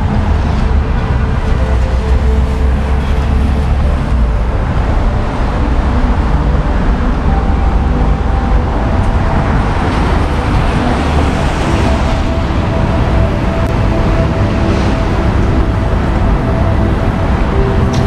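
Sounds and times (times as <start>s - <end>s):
city traffic on wet street: 0.0s - 18.0s.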